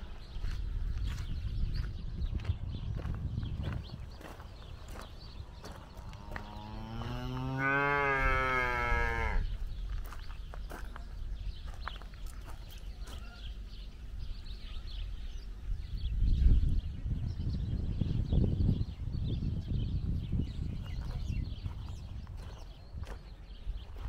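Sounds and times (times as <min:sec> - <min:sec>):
cow mooing: 0:06.3 - 0:09.5.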